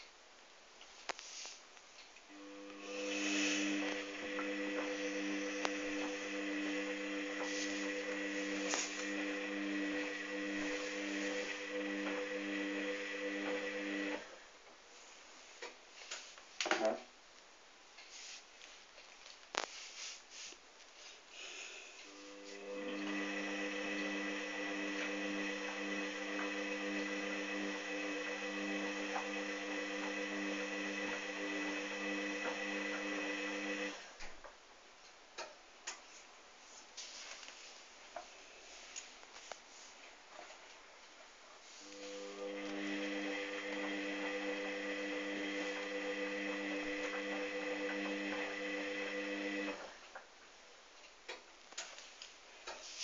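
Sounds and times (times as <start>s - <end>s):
washing machine motor humming: 2.3s - 14.4s, 22.1s - 34.1s, 41.8s - 49.9s.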